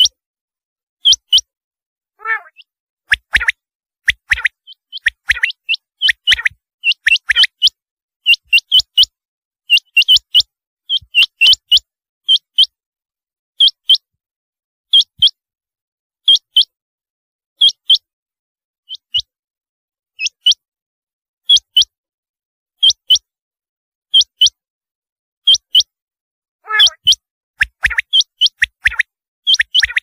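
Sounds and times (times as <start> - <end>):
quail calling: 2.2 - 7.7, 26.6 - 30.0.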